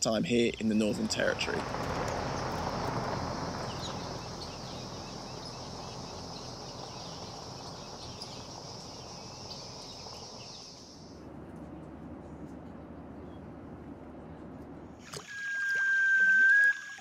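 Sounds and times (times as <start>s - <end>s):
high-pitched insect drone: 1.0s - 11.1s.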